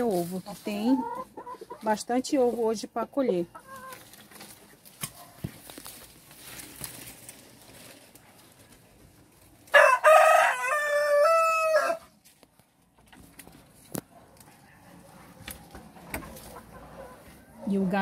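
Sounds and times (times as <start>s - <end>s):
rooster crowing: 9.7s - 12.1s.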